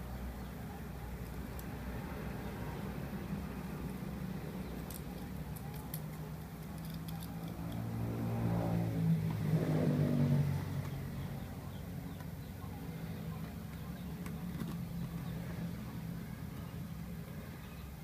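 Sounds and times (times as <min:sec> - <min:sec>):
steady low hum: 0:00.0 - 0:18.0
passing vehicle engine: 0:06.7 - 0:16.7.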